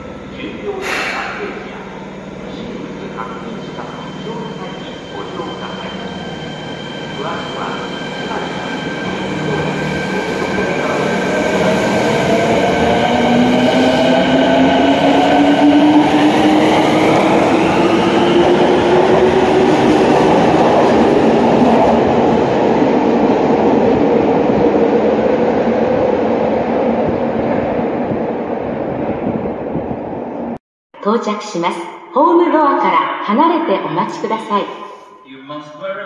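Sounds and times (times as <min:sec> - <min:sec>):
subway train motor whine: 0:00.0 - 0:21.2.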